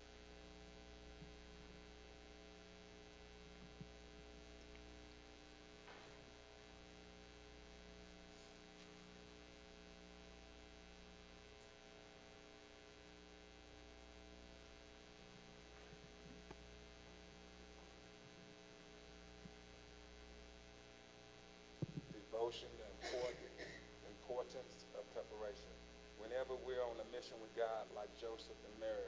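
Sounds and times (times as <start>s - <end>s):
electrical mains hum: 0.0s - 29.0s.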